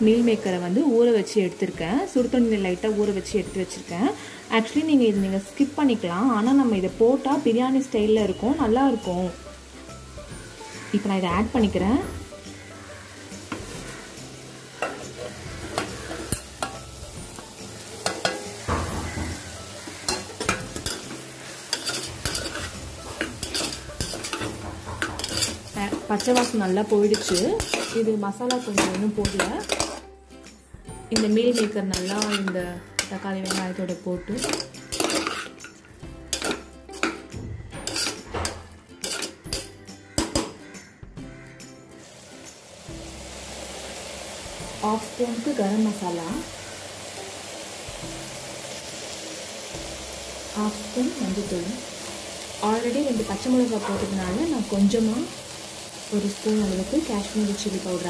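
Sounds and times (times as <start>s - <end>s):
oil sizzling: 0.0s - 40.7s, 41.3s - 58.0s
metal ladle scraping metal pot: 18.0s - 30.1s, 31.1s - 40.5s.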